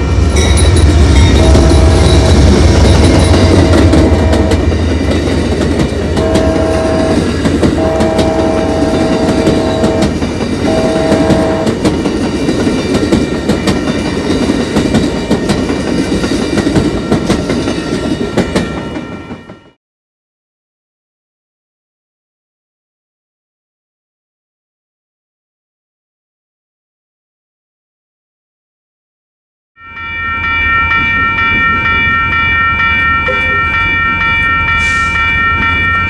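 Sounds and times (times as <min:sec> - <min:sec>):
train horn blasts: 0:01.2 - 0:02.6, 0:03.4 - 0:04.7, 0:06.2 - 0:11.8.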